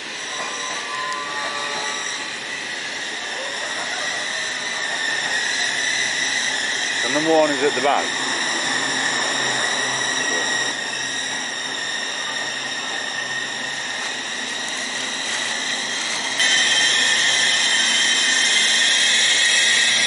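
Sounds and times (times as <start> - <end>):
electric train whine: 0.0 - 20.0
train running noise: 0.0 - 20.0.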